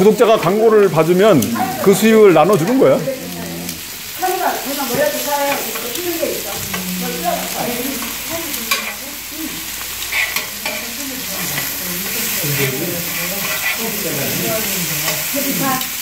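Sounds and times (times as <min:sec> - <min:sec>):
meat sizzling on a griddle: 0:00.0 - 0:16.0
metal tongs clicking on plate: 0:08.0 - 0:09.0, 0:10.1 - 0:11.7.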